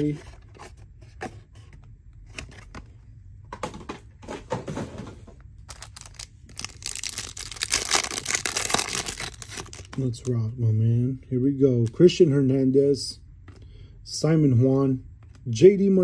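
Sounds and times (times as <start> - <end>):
wrapper crinkling and tearing: 5.7 - 10.3.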